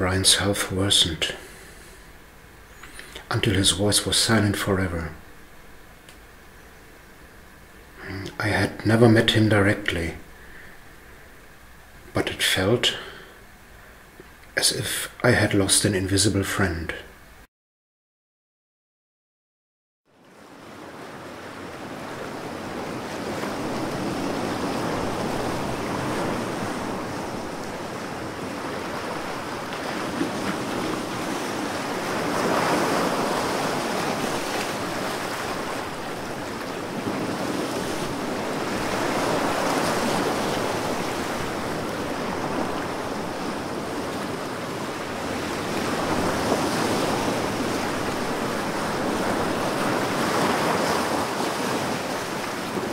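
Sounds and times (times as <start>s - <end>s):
waves lapping and splashing: 20.2s - 52.9s.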